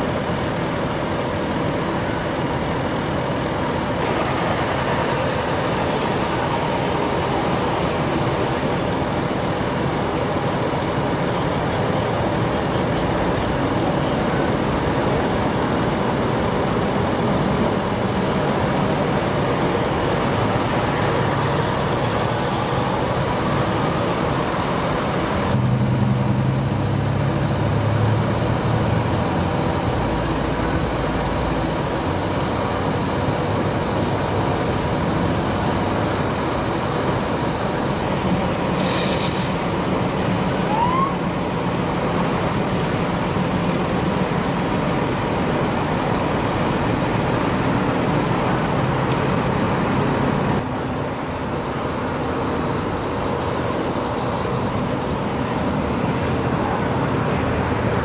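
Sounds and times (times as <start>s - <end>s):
freeway traffic noise: 0.0s - 58.0s
idling engines hum: 0.0s - 58.0s.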